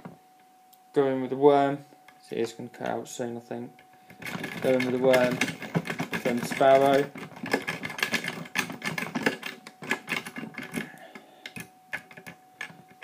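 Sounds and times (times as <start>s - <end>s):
lock pick clicking and scraping: 4.1s - 13.0s.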